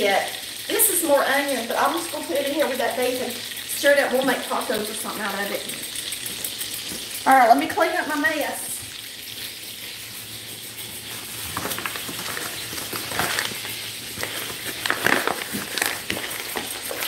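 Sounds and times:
oil sizzling in a skillet: 0.0s - 17.0s
paper bag rustling: 11.0s - 17.0s.

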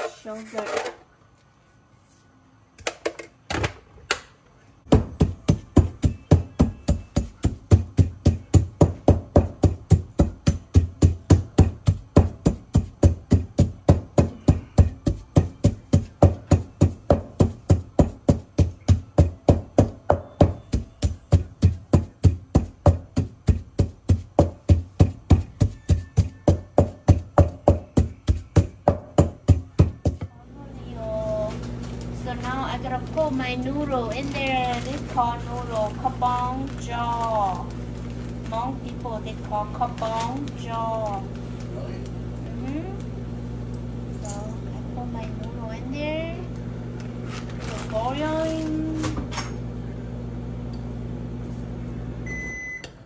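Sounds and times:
wooden pestle pounding in metal mortar: 4.9s - 30.3s.

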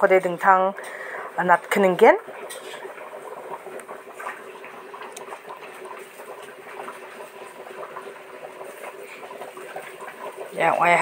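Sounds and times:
hot oil sizzling in a pan: 0.0s - 4.2s, 8.4s - 11.0s
faint steady hum: 0.0s - 11.0s.

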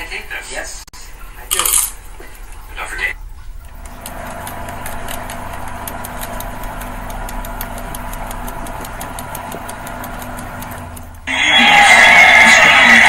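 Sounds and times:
motorboat engine running: 3.2s - 11.3s
constant rushing noise: 3.2s - 11.4s.

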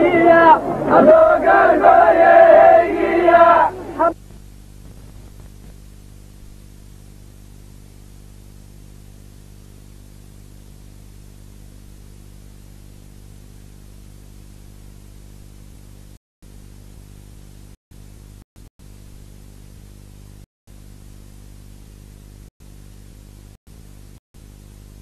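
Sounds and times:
tape hiss: 0.0s - 11.4s
low mains hum: 0.0s - 25.0s.

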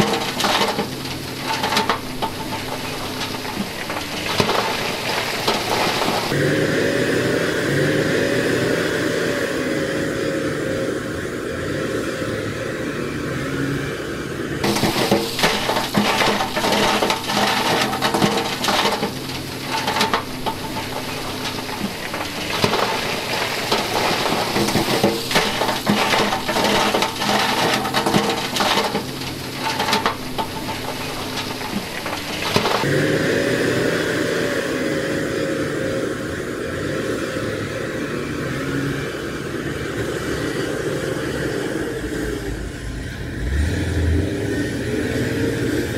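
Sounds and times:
rock sliding and clattering: 0.0s - 6.4s, 14.6s - 33.1s
diesel truck engine: 0.0s - 45.9s.

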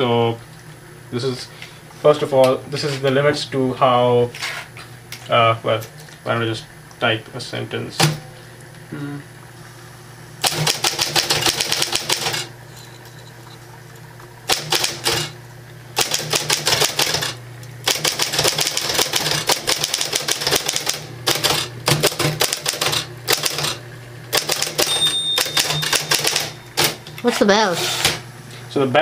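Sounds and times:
typewriter motor hum: 10.4s - 12.5s, 14.4s - 15.4s, 16.0s - 28.2s
typewriter key strikes: 24.4s - 27.0s.

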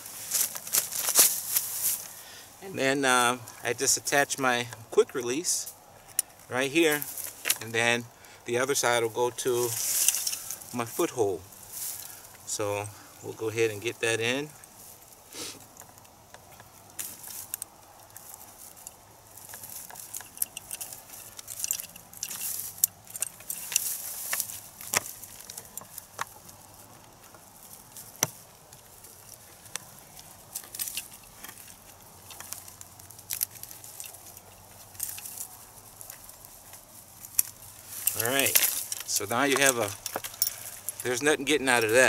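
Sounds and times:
rustling in dry grass: 0.0s - 42.0s.

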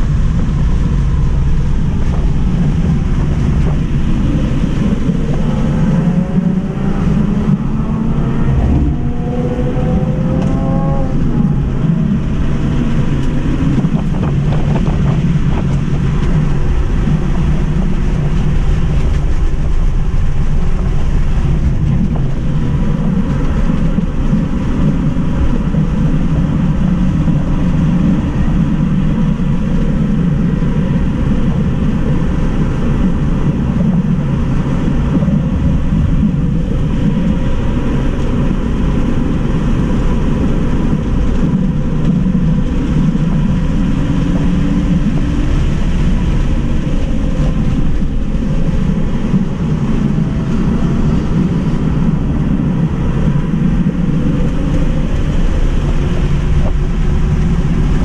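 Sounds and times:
road tyre and wind noise: 0.0s - 58.0s.

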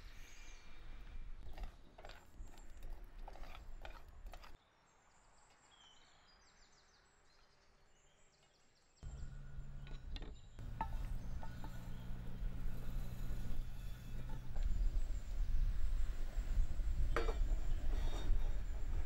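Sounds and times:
spatula scraping seeds in pan: 1.4s - 4.6s, 10.6s - 15.3s
low steady hum: 9.0s - 19.0s
fire low rumble: 9.1s - 19.0s.

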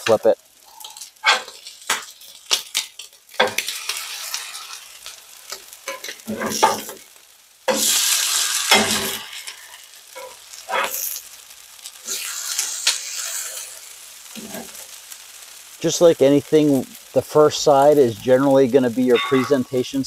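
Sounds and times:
cakes sizzling in butter: 0.0s - 20.0s
metal spatula scraping a pan: 5.9s - 6.9s, 12.2s - 14.8s, 19.0s - 20.0s.

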